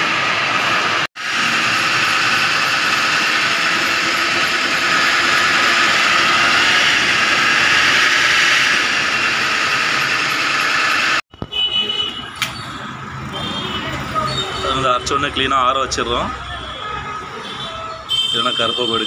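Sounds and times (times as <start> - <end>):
spice grinding mill running: 1.2 - 11.2.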